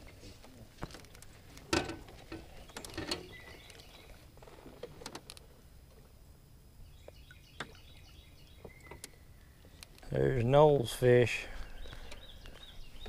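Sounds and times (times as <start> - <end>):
birds chirping: 0.8 - 4.3, 6.8 - 13.0.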